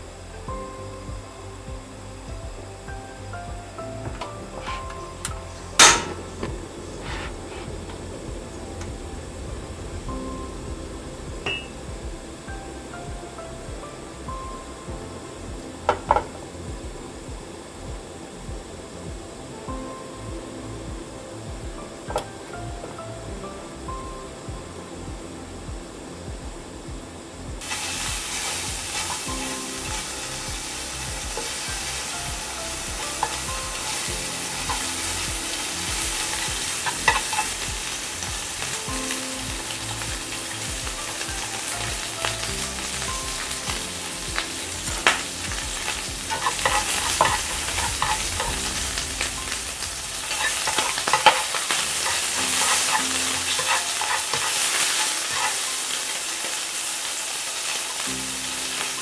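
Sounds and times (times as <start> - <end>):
food sizzling in frying pan: 0.0 - 18.7, 27.6 - 59.0
chopsticks scraping pan: 50.2 - 55.7.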